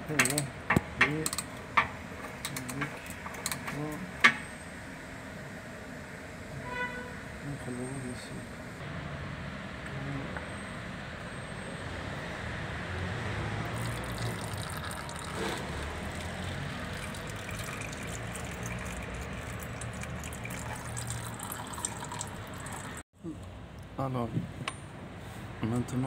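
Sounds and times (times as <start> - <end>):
oil pouring and splashing: 13.7 - 23.0.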